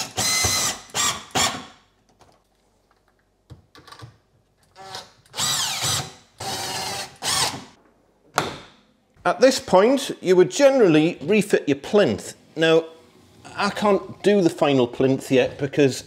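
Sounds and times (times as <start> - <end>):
cordless drill driving screws: 0.0 - 1.6, 4.8 - 7.7.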